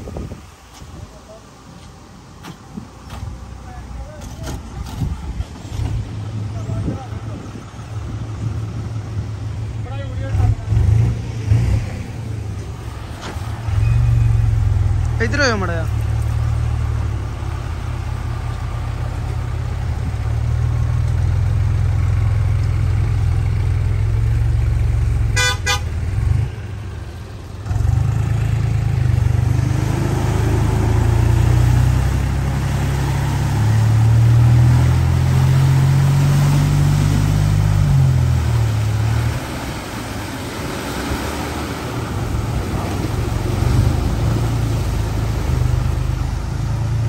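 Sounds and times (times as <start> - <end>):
low vehicle engine rumble: 0.0 - 47.0
engine revving: 10.1 - 12.4, 27.6 - 47.0
car horn toot: 25.3 - 26.0.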